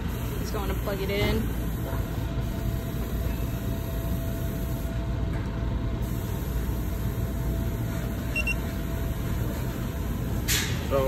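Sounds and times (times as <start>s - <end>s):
faint short high beep: 8.4s - 8.6s.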